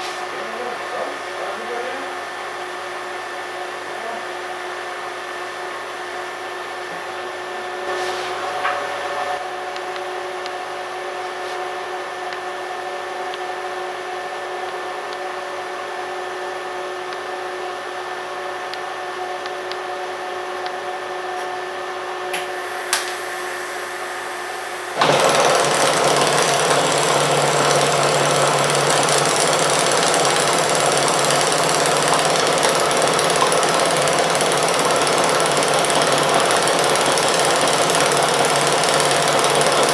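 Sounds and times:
steady machine hum: 0.0 - 39.9
welding arc rasping: 25.0 - 39.9.

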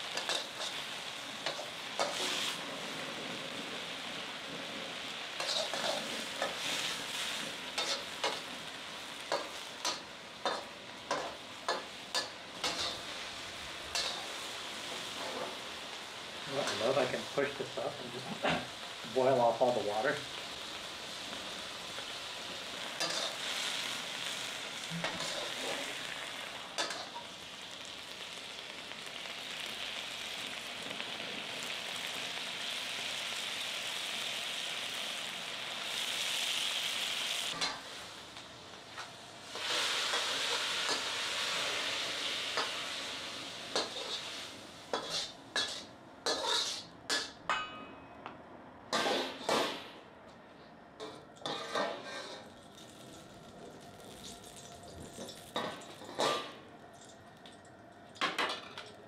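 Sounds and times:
vegetables sizzling in a wok: 0.0 - 47.4, 48.9 - 50.0, 51.4 - 57.2
metal spatula scraping a wok: 5.4 - 8.4, 9.3 - 13.2, 13.9 - 14.4, 23.0 - 23.8, 25.0 - 26.0, 43.7 - 47.3, 48.9 - 49.9, 51.0 - 52.6, 55.2 - 56.6.

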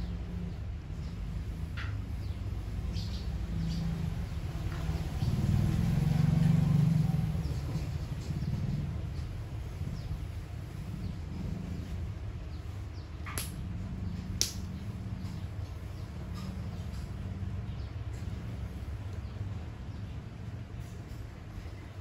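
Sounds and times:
low engine-like hum: 0.0 - 22.0
sharp clicks: 13.3 - 13.6, 14.4 - 14.8.

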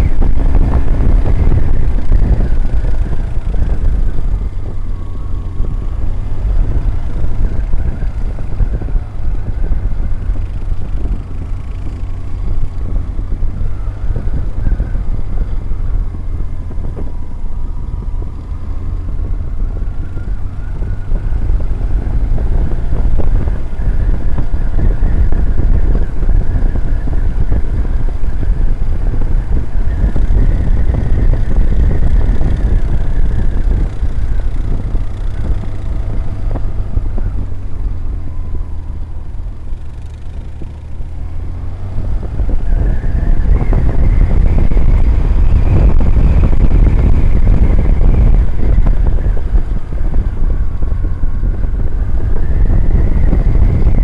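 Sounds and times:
motorcycle engine running: 0.0 - 54.0
wind and road rush: 0.0 - 54.0.

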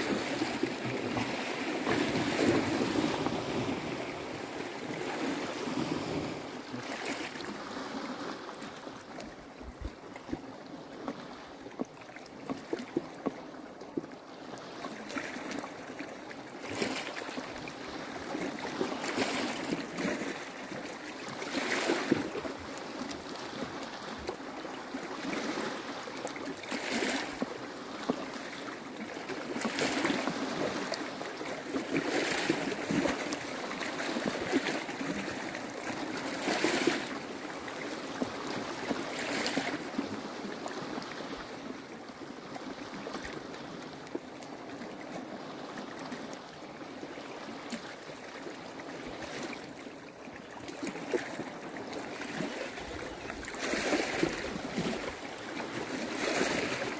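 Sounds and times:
waves washing on rocky shore: 0.0 - 8.8.

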